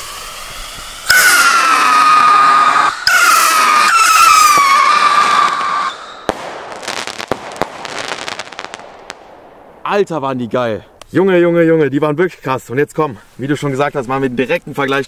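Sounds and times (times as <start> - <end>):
whistling firework rockets: 0.0 - 9.9
firework cracks and pops: 3.1 - 11.2
sharp firework bang: 4.4 - 10.8.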